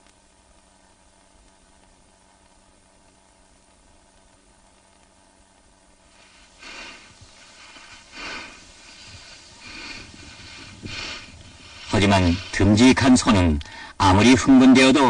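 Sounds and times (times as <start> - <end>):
faint steady hiss: 0.0 - 15.0
cattle breathing heavily: 6.2 - 13.0.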